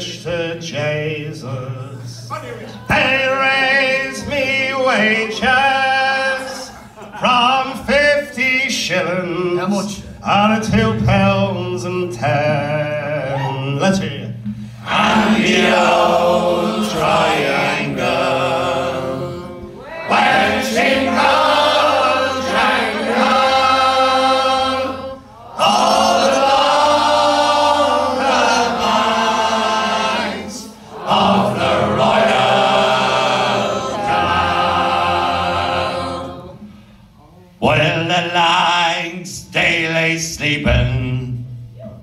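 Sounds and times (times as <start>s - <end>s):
men singing in harmony: 2.8s - 13.9s, 14.8s - 36.7s.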